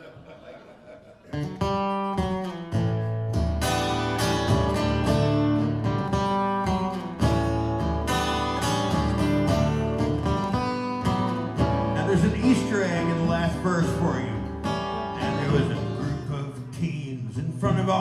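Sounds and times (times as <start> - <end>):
acoustic guitars strumming: 1.2 - 18.0.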